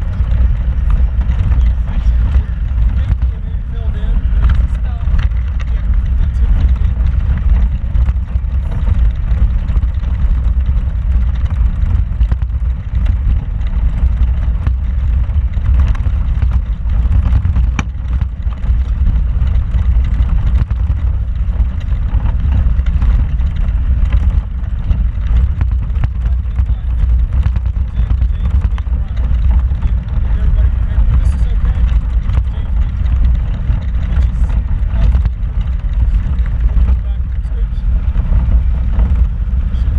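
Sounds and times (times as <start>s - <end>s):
knocks and rattles: 0.0s - 39.9s
vehicle engine rumble: 0.0s - 39.9s.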